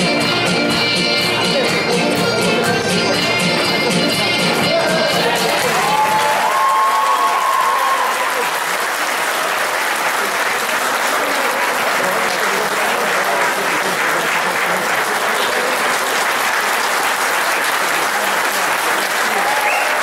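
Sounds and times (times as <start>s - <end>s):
faint voices: 0.0s - 6.4s, 10.0s - 20.0s
audience clapping: 4.4s - 20.0s.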